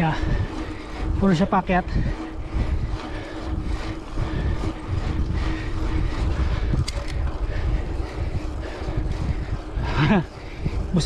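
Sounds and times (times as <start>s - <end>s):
wind buffeting microphone: 0.0s - 11.0s
light clicks: 6.8s - 7.2s.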